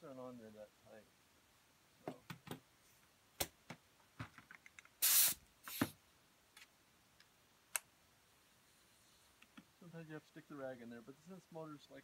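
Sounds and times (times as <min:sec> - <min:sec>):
compressed air hiss: 0:05.0 - 0:06.0.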